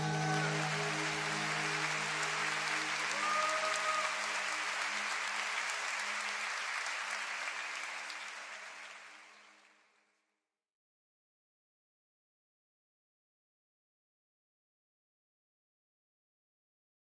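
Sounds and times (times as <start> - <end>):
crowd cheering: 0.0 - 9.4
crowd applauding: 0.0 - 10.0.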